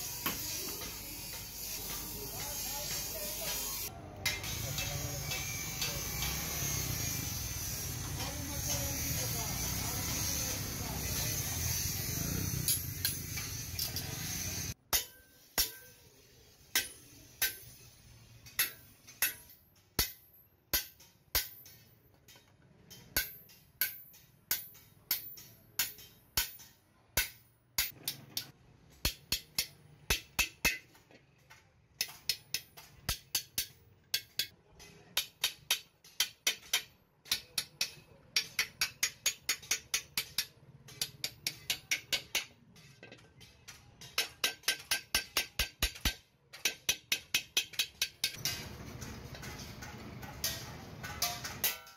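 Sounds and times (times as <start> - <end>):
hammer tapping metal punch: 16.7 - 34.5, 35.2 - 51.9.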